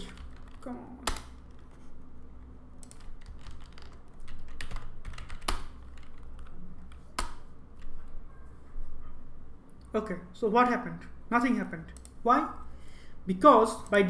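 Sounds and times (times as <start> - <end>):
keyboard typing: 0.0 - 1.8, 2.8 - 8.2
low steady hum: 0.0 - 14.0.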